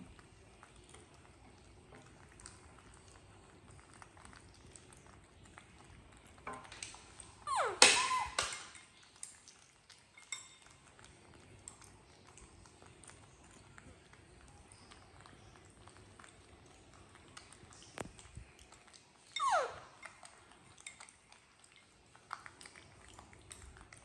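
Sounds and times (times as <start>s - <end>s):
baby monkey squealing: 7.5s - 8.6s, 19.4s - 20.0s
metal spoon clinking ceramic bowl: 10.2s - 10.8s.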